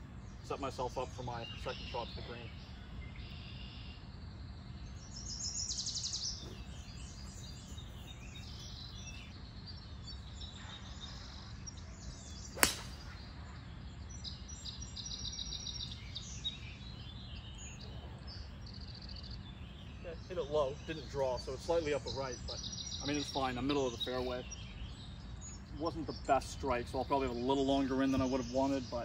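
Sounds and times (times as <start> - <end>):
golf club striking ball: 12.5 - 13.2.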